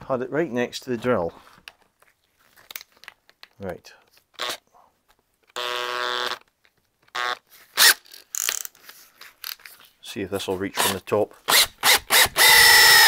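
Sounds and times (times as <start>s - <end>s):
cordless drill whine: 5.6s - 6.4s, 7.1s - 8.0s, 11.5s - 13.0s.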